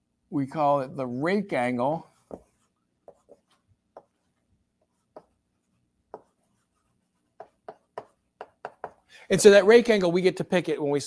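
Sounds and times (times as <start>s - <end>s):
chalk tapping and scraping on blackboard: 2.0s - 9.1s.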